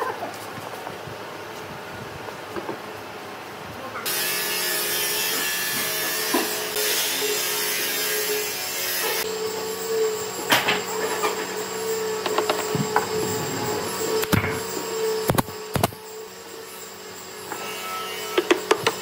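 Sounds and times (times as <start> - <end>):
power tool working wood: 4.1 - 19.0.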